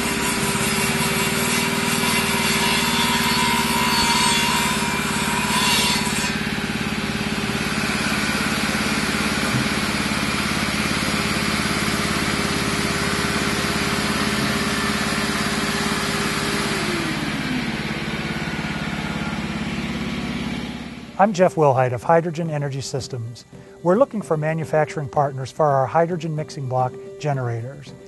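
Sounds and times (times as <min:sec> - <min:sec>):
saw cutting: 0:00.0 - 0:21.2
shop vac whine: 0:00.0 - 0:28.0
portable generator engine running: 0:06.2 - 0:28.0.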